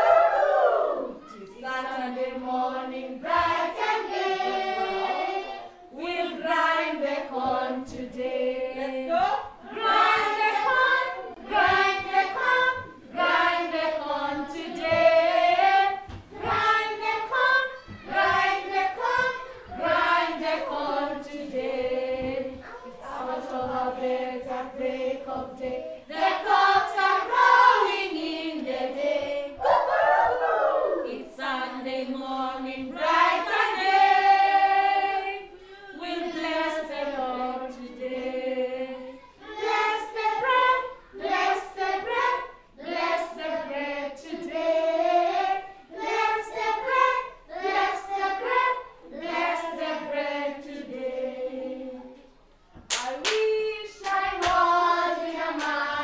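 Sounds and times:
children singing: 0.0 - 52.4, 53.0 - 56.0
woman singing: 1.3 - 3.5, 5.9 - 19.2, 31.1 - 33.9, 53.0 - 56.0.

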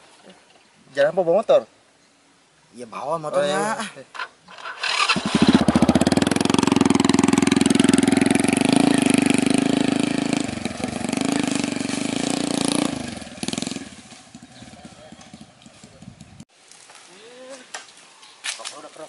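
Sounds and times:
small motorcycle engine running: 4.6 - 16.2.

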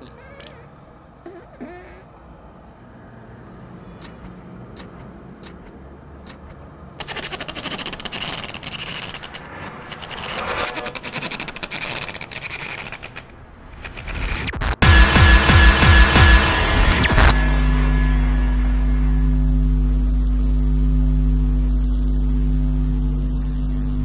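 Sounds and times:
cartoon ripping noise: 0.0 - 2.0, 6.3 - 14.7
faint clicks: 4.0 - 7.2
low ambient hum: 17.3 - 24.0.

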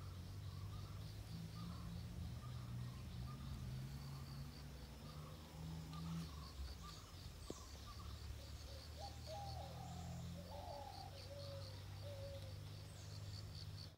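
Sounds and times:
birds warbling: 0.0 - 13.9
insect chirping: 0.0 - 13.9.

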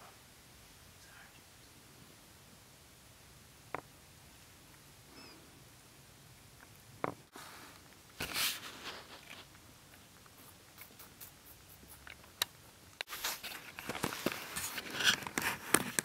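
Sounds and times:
rabbit crunching and nibbling food: 6.5 - 16.0.

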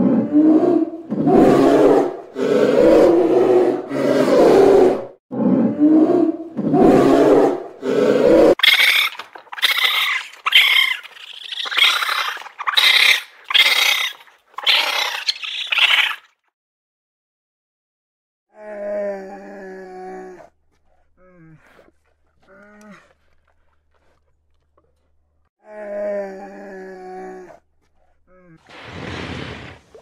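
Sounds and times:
high-pitched animal calls: 8.5 - 16.3.

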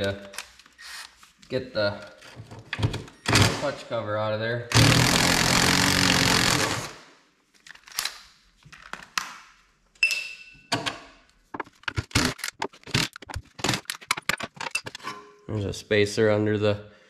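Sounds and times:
cordless power tool running: 4.7 - 6.9.

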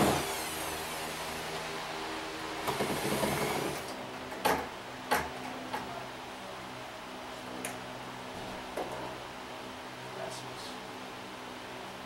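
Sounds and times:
electric drill spinning down: 0.0 - 1.7, 2.7 - 4.0.

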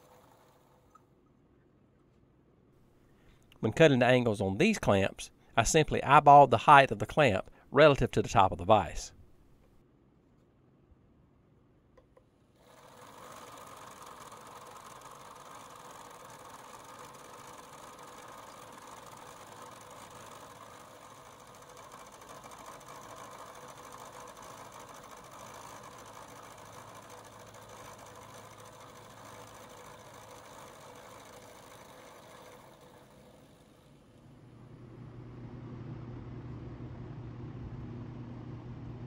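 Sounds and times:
milling machine cutting steel: 12.6 - 33.9.

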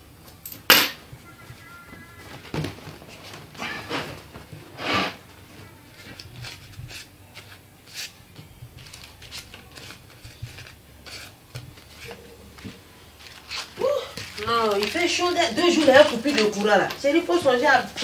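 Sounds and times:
paper banknotes crinkling: 6.0 - 18.0.

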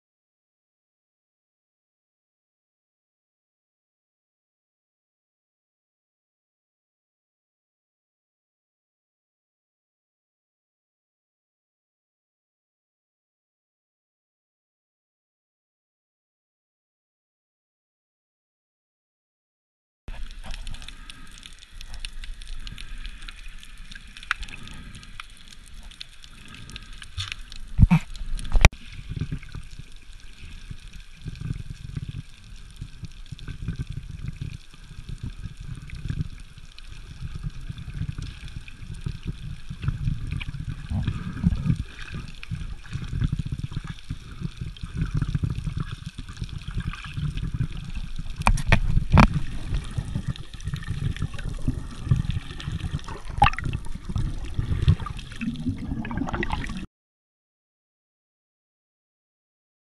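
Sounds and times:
underwater water noise gurgling: 20.1 - 56.9.

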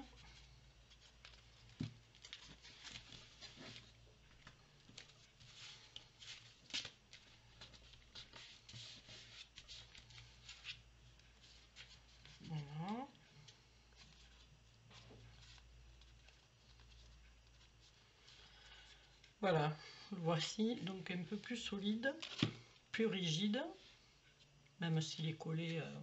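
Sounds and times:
paper rustling and scratching: 0.1 - 19.3.

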